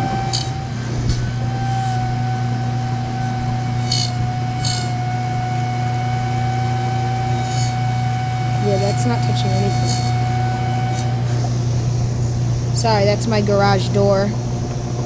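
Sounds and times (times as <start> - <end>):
scratching rasps: 0.0 - 5.2, 5.9 - 11.6
mini siren whining: 0.0 - 11.5.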